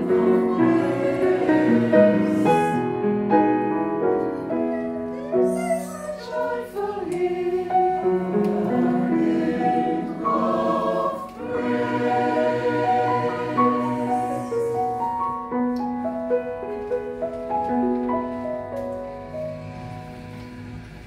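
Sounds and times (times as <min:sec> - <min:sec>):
mixed choir singing: 0:00.0 - 0:03.0, 0:06.1 - 0:15.2
grand piano: 0:00.0 - 0:21.0.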